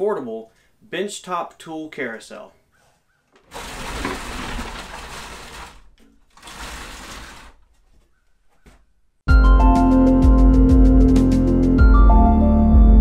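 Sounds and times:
carousel rolling rumble: 3.5 - 7.5
music: 9.3 - 13.0.

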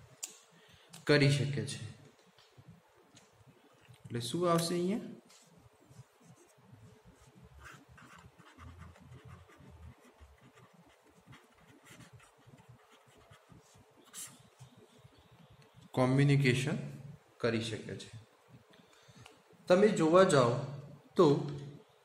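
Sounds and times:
marker scratching on paper: 5.4 - 14.8.

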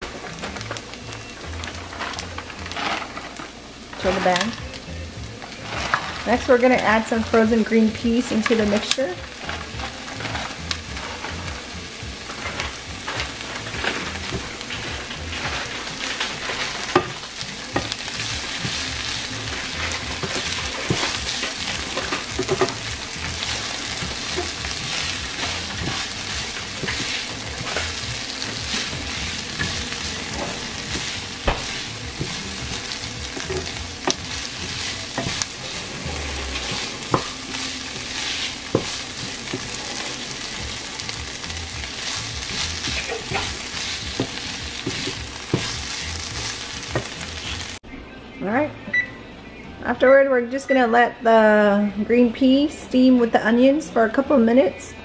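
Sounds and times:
vegetables sizzling in oil: 0.0 - 47.8
spatula tapping and scraping pan: 19.6 - 37.6, 38.2 - 40.1, 42.5 - 47.2.

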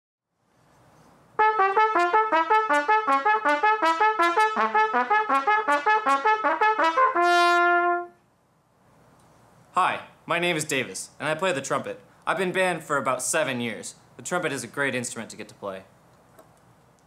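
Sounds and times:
solo trumpet: 1.4 - 8.2.

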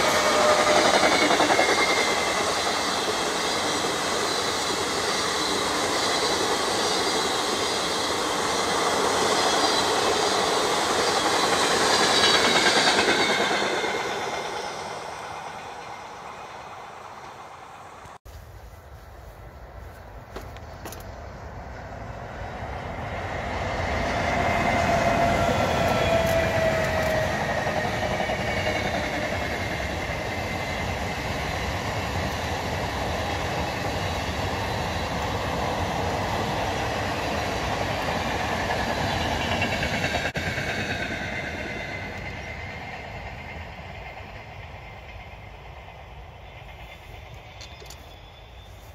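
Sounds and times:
train wheels clickety-clack on rails: 0.0 - 18.2, 19.9 - 21.2, 22.5 - 48.9
train whine: 0.0 - 48.9.

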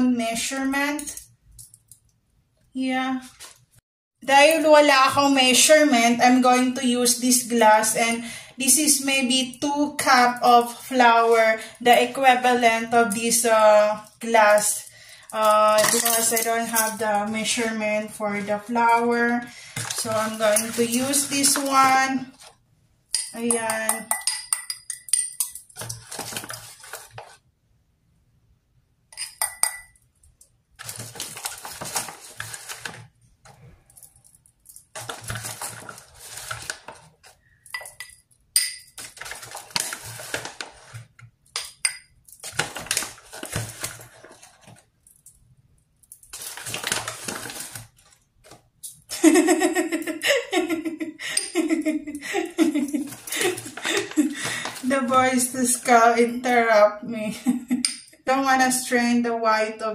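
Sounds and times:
spoon scraping flour: 15.7 - 22.5, 23.3 - 27.4, 35.0 - 41.2
spoon clinking against glass: 23.2 - 25.7, 29.1 - 30.0, 37.7 - 39.0
laughter: 49.1 - 54.2.

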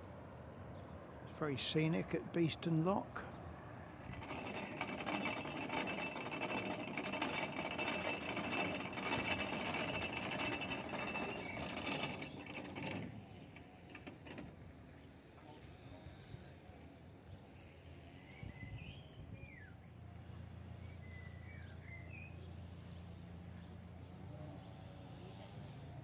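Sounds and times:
ratchet pawl clicking: 4.1 - 13.2.

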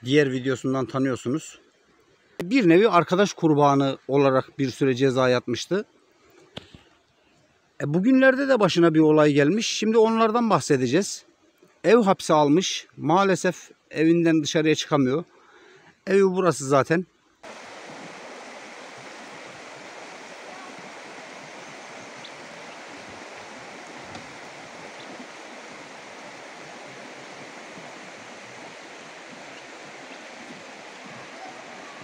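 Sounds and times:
stream running over rocks: 17.4 - 32.0.

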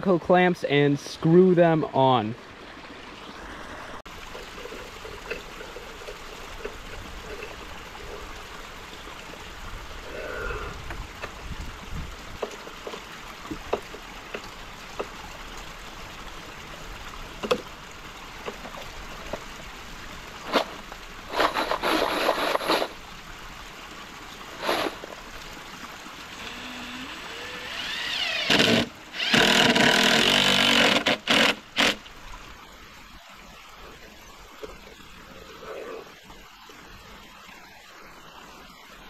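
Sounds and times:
cordless drill whining: 26.4 - 32.0.

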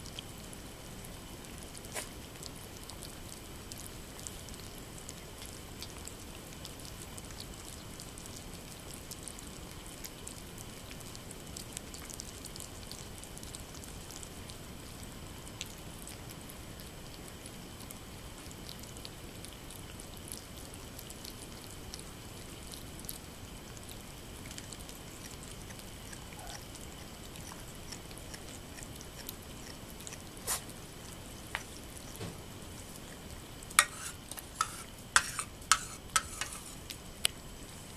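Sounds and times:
cats chewing and lapping: 0.0 - 37.9
steady hiss: 20.3 - 37.9.

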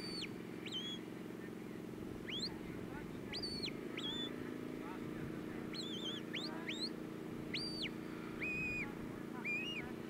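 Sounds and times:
steady low hum: 0.0 - 10.0
shepherd's whistles: 7.5 - 9.8.

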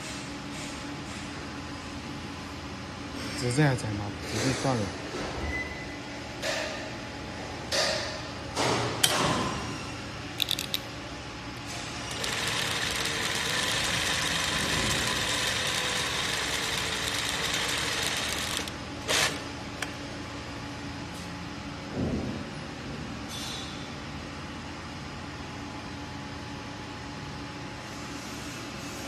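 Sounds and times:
sewing machine stitching: 12.1 - 19.4.

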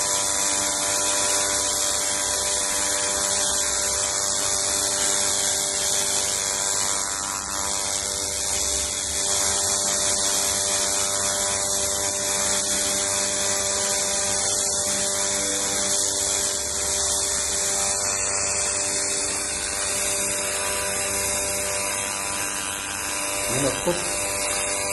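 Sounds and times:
laser cleaner hissing: 2.5 - 24.9
multi-tone hum: 12.4 - 24.9.

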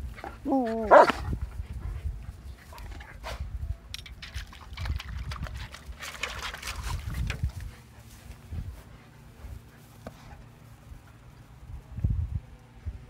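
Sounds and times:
puppy lapping water from metal bowl: 4.2 - 7.7.

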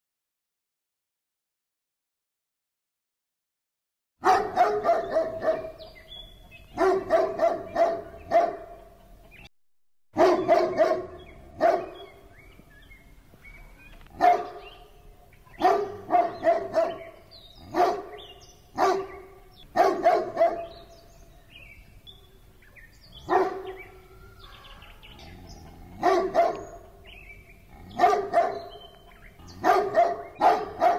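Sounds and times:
big dog barking: 4.2 - 6.0, 6.6 - 9.0, 10.2 - 12.2, 14.1 - 14.9, 15.5 - 20.9, 23.2 - 30.9.

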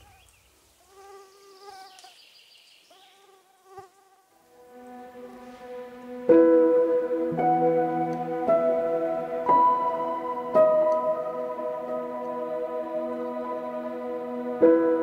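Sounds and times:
flying insect buzzing: 0.8 - 2.2, 2.9 - 7.2
soft ambient music: 4.5 - 15.0.

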